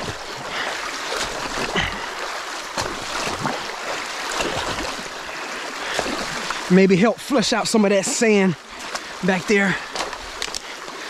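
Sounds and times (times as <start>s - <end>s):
water rushing: 0.0s - 11.0s
short knocks or splashes: 1.1s - 2.1s, 2.7s - 5.1s.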